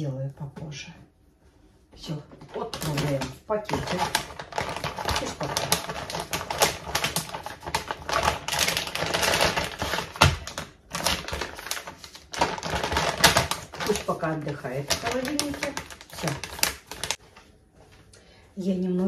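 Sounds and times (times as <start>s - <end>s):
plastic bag crinkling: 2.3s - 17.2s.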